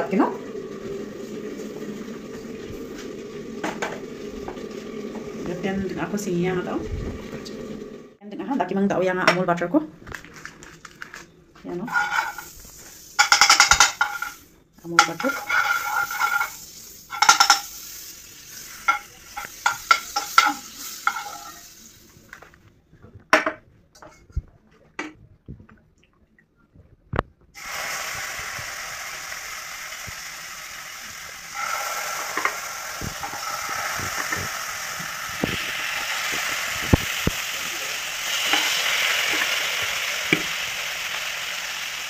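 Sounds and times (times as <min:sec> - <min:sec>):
spatula scraping frying pan: 0:11.9 - 0:21.7
chicken sizzling in butter: 0:11.9 - 0:22.3, 0:27.6 - 0:42.0.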